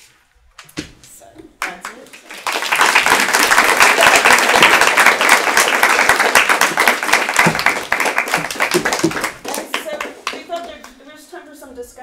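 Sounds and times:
audience applauding: 0:01.6 - 0:11.0.

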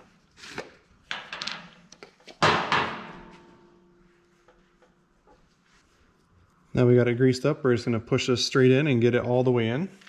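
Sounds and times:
ringing metal clank: 0:02.8 - 0:04.0.

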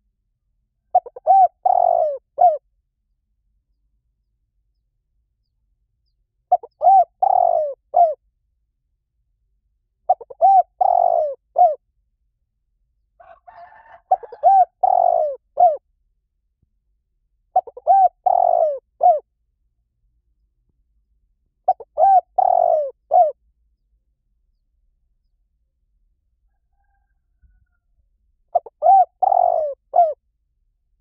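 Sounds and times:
dove cooing: 0:00.9 - 0:02.6, 0:06.5 - 0:08.2, 0:10.1 - 0:11.8, 0:13.2 - 0:15.8, 0:17.5 - 0:19.2, 0:21.7 - 0:23.4, 0:28.5 - 0:30.2.

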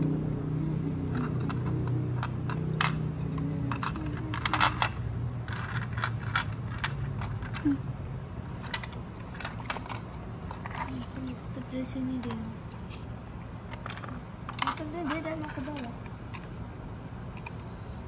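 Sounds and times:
plastic toy pieces clicking: 0:01.1 - 0:07.8, 0:13.7 - 0:16.5.

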